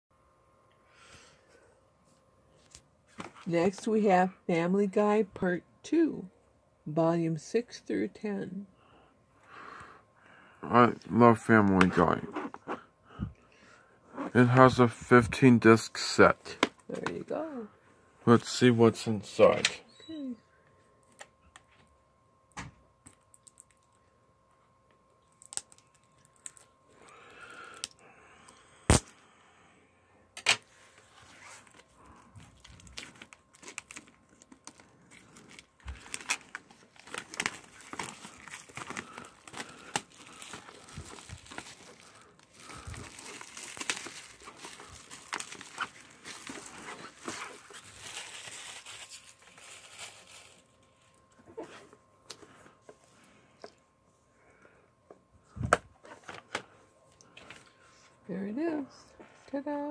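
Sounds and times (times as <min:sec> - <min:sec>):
plastic wrap crinkling: 0:25.3 - 0:28.0, 0:31.3 - 0:51.2.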